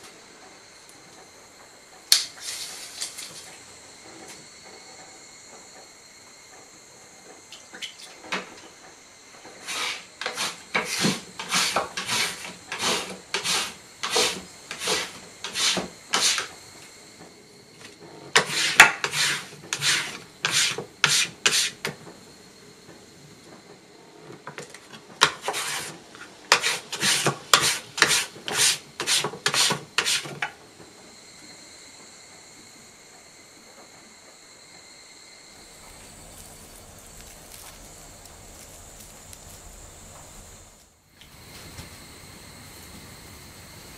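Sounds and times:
hand scraper scraping fiber strips: 0:09.6 - 0:16.5, 0:18.3 - 0:21.9, 0:25.2 - 0:30.5.

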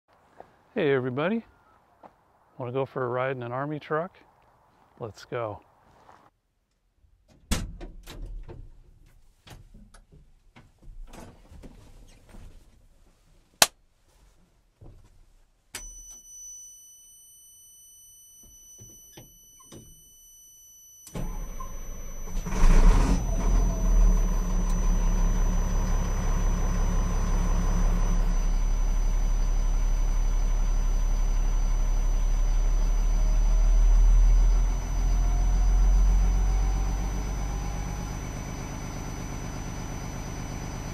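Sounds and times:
thin high tones: 0:15.8 - 0:33.5
diesel engine cranking and idling: 0:21.0 - 0:40.9.

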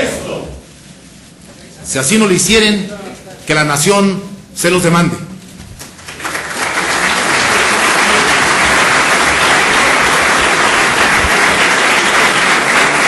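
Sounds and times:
crowd applauding: 0:05.8 - 0:13.0.

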